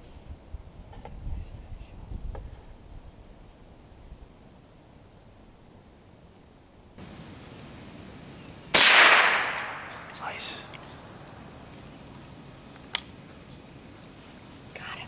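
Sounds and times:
rifle shot: 8.7s - 10.6s.

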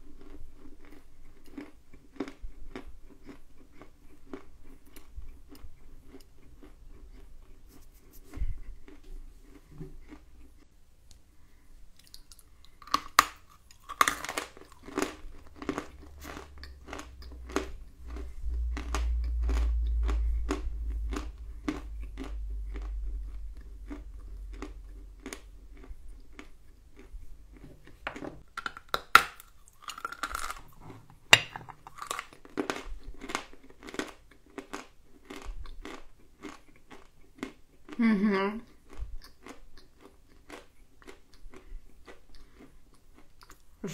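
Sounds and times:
crunching and chewing clay: 0.0s - 10.7s, 11.9s - 38.0s, 38.6s - 43.8s
low rumble: 15.9s - 26.3s.

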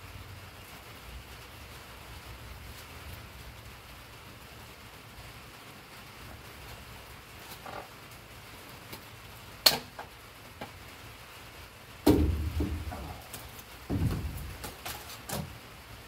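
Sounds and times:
metal poles clanking and rattling: 12.1s - 15.5s.

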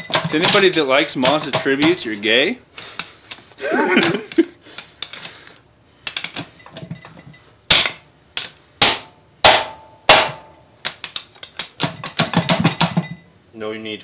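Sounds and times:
hammer striking steel bar: 7.7s - 8.0s, 8.8s - 10.6s.

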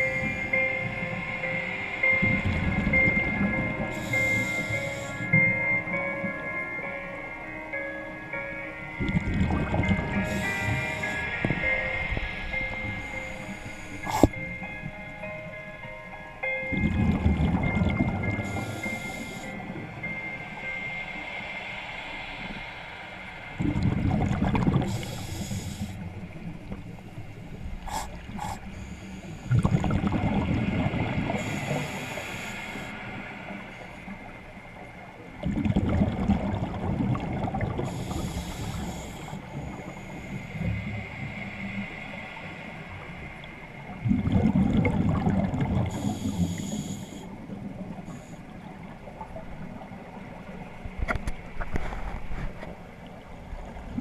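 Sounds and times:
regulator hiss: 0.0s - 5.7s, 10.0s - 14.8s, 18.3s - 29.9s, 30.9s - 35.2s, 37.6s - 44.0s, 45.5s - 50.6s
exhaled bubbles rushing: 23.6s - 24.9s, 29.5s - 31.3s, 35.4s - 37.8s, 44.0s - 45.9s.

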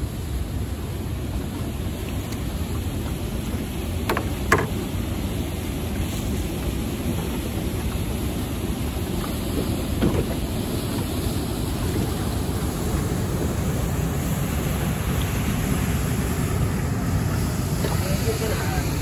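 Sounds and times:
turbulent river water rushing: 0.0s - 19.0s.

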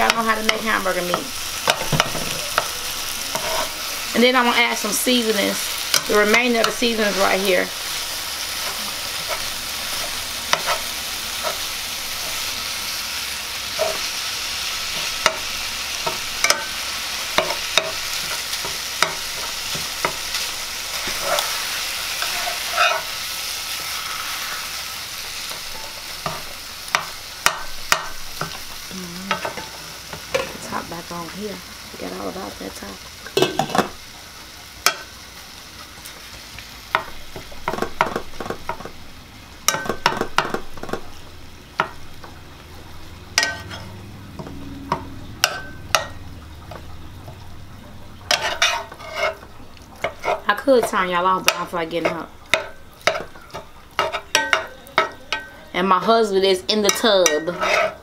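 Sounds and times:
meat sizzling in a skillet: 0.0s - 58.0s
fork scraping and clicking on pan: 3.3s - 3.7s, 8.6s - 10.8s, 13.8s - 14.1s, 17.4s - 23.1s, 43.4s - 44.5s, 48.3s - 49.4s, 50.0s - 50.5s, 51.5s - 55.5s, 56.9s - 58.0s.

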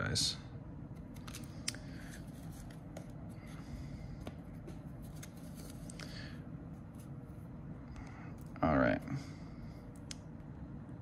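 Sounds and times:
low room hum: 0.0s - 11.0s
cards flipping and sliding: 0.9s - 6.1s.

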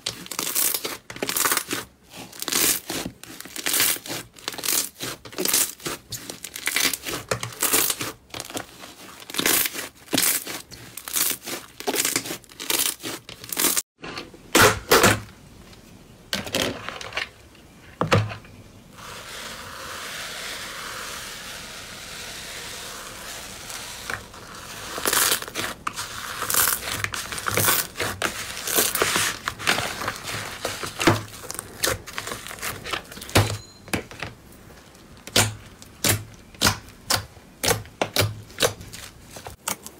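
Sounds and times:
slime crackling and popping: 0.1s - 8.6s.

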